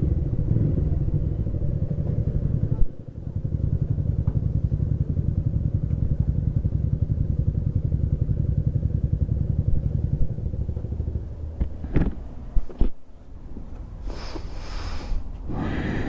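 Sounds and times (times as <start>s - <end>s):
motorcycle engine running: 0.0s - 12.5s.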